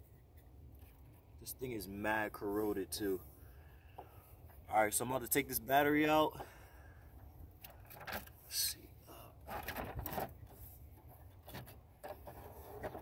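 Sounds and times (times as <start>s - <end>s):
clicks knocks and scrapes: 9.4s - 13.0s.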